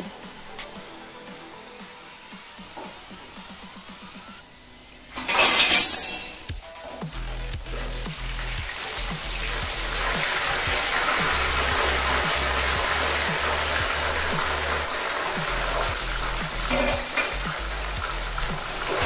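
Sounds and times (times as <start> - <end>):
background music: 0.0 - 19.0
chicken sizzling in hot oil: 7.0 - 19.0.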